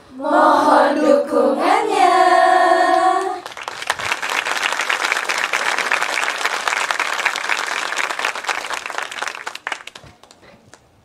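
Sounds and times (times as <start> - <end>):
performers singing: 0.1 - 3.4
audience applauding: 3.4 - 10.8.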